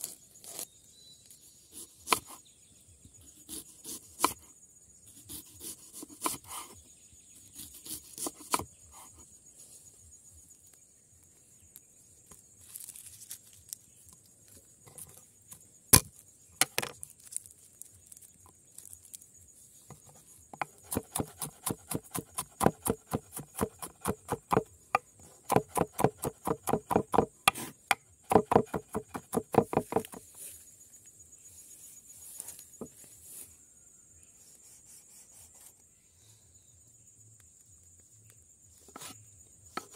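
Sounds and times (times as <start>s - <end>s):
insects trilling: 0.0s - 39.9s
knife chopping on wooden board: 3.5s - 4.4s, 20.6s - 30.2s.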